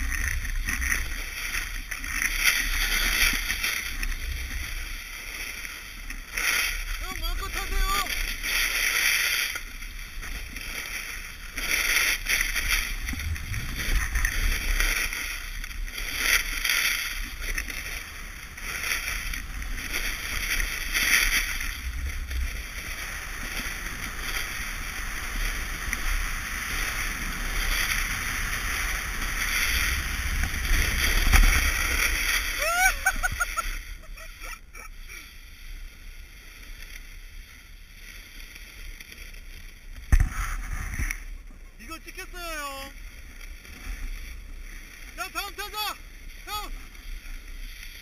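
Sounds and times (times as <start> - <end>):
ski edges scraping snow: 0.0 - 48.0
wind rushing on microphone: 13.0 - 14.8.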